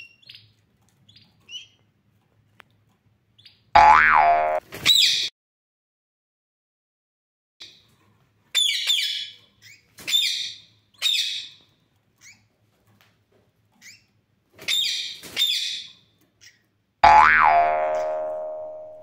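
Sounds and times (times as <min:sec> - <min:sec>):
faint bird chirps: 0:00.0 - 0:01.8.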